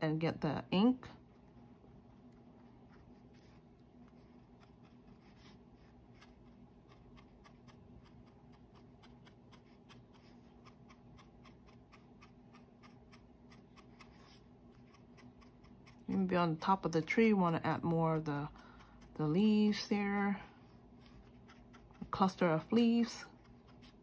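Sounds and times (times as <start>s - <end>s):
faint low hum: 0.0s - 24.0s.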